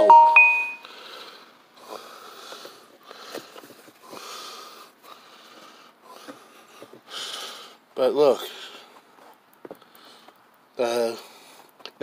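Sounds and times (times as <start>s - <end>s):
person breathing hard: 0.8s - 9.0s.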